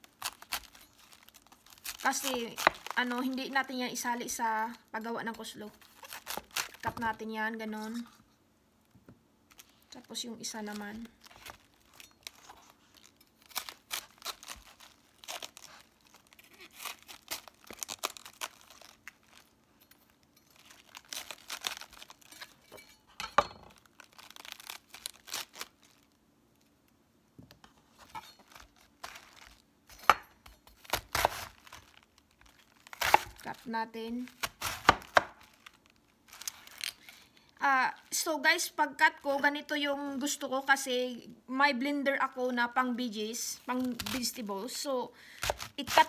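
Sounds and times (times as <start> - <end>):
knife cutting crunchy cabbage: 0.0 - 3.6, 5.8 - 7.2, 10.5 - 19.5, 20.6 - 22.5, 24.1 - 25.8, 28.0 - 37.2, 45.4 - 46.0.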